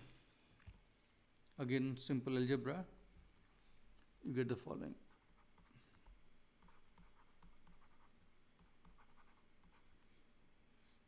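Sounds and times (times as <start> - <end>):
stylus tapping on pen tablet: 6.6 - 9.9.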